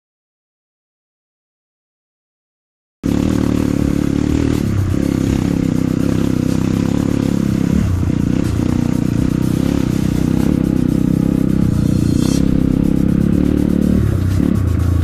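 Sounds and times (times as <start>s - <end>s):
motorcycle engine running: 3.0s - 15.0s.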